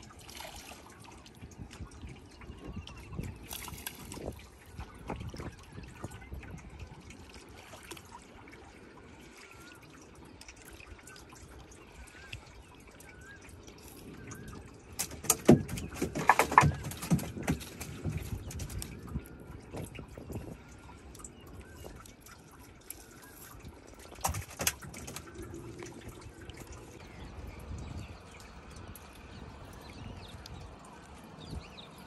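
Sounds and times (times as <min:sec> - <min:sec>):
water dripping off a net: 0:00.0 - 0:08.7, 0:09.4 - 0:32.0
splashes: 0:00.0 - 0:32.0
net knocking against boat: 0:15.0 - 0:18.8.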